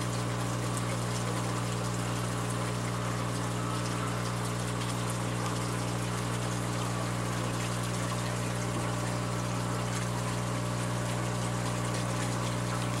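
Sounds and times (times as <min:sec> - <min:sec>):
pump hum: 0:00.0 - 0:13.0.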